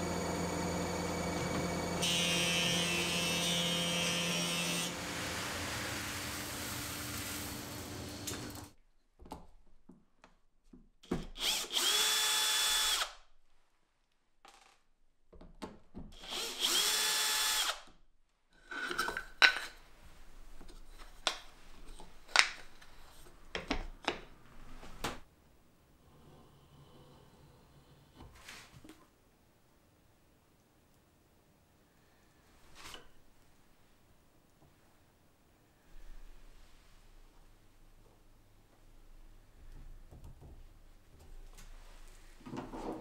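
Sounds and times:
drill whining: 0.0 - 8.5, 11.4 - 13.1, 16.2 - 17.8
woodworking machine running: 0.0 - 8.6.

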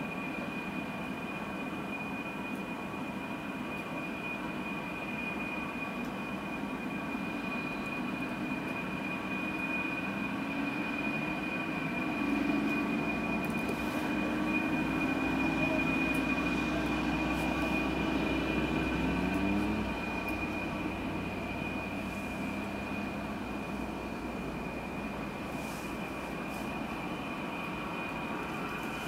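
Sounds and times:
low mechanical drone: 0.2 - 29.0
high thin whine: 8.8 - 29.0.

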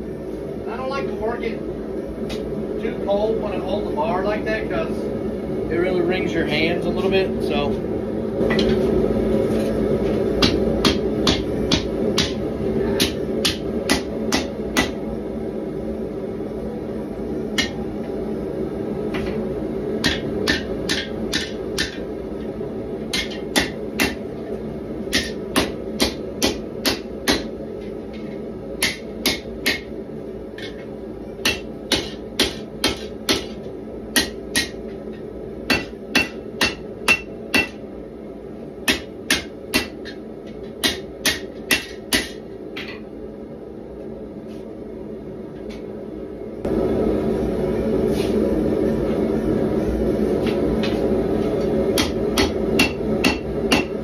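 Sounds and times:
forge burner roaring: 0.0 - 54.0
hammer striking steel on anvil: 10.4 - 12.4, 13.0 - 15.0, 17.6 - 17.8, 20.0 - 22.0, 23.1 - 24.2, 25.1 - 27.5, 28.8 - 29.9, 31.4 - 34.8, 35.7 - 37.8, 38.8 - 43.0, 51.9 - 54.0.

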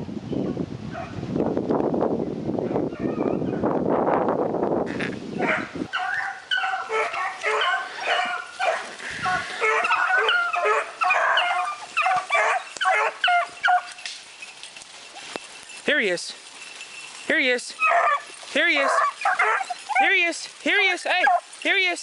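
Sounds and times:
hounds baying: 5.4 - 15.8, 16.4 - 21.8.

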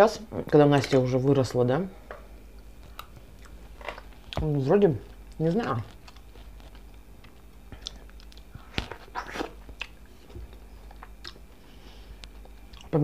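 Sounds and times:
chewing tomato: 5.1 - 11.5, 12.2 - 13.0.

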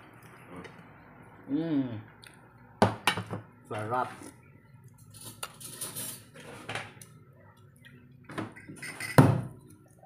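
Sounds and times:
dishes clinking on table: 8.3 - 9.6.

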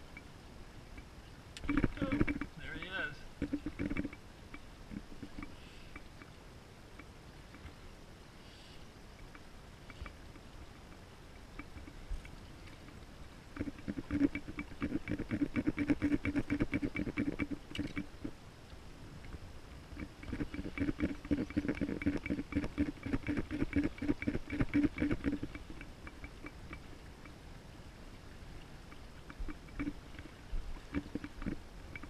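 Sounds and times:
fishing reel clicking: 20.0 - 26.8.

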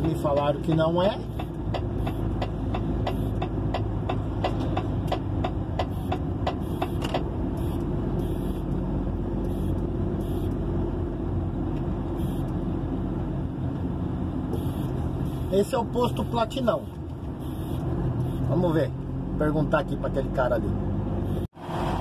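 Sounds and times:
regular ticking: 0.0 - 7.9
truck engine running: 0.0 - 18.4.

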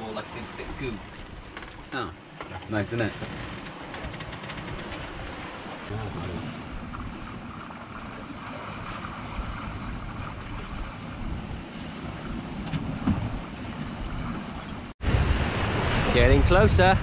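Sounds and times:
sea washing past hull: 0.0 - 17.0
wind buffeting microphone: 3.2 - 17.0.

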